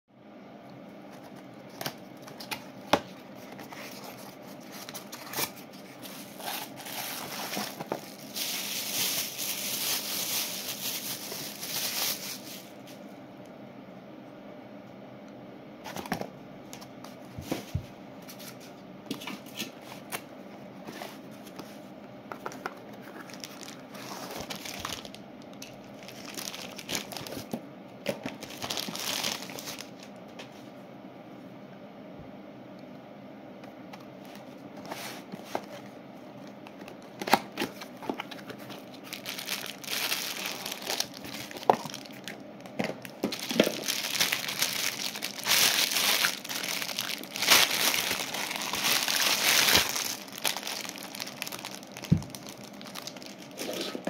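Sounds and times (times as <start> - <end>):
faint steady hum: 0.1 - 54.0
cardboard packaging rustling: 1.1 - 13.0, 20.8 - 30.0, 34.3 - 54.0.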